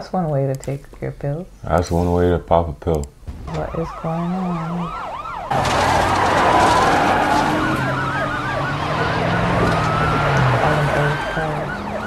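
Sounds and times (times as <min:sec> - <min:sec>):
police sirens yelping and wailing: 0:03.5 - 0:12.0.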